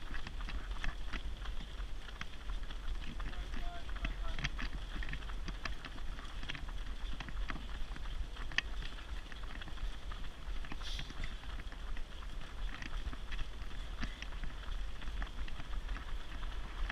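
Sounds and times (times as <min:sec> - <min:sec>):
runners footsteps on road: 0:00.0 - 0:16.9
steady low rumble: 0:00.0 - 0:16.9.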